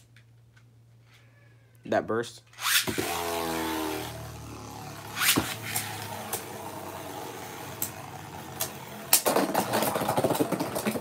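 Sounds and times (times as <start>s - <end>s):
spinning tops whirring: 2.5s - 11.0s
ripping launcher: 5.1s - 6.7s.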